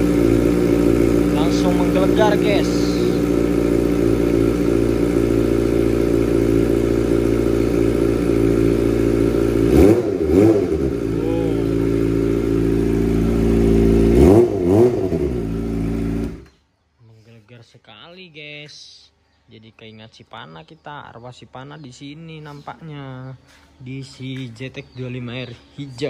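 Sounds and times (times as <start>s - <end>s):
motorcycle engine idling: 0.0s - 16.5s.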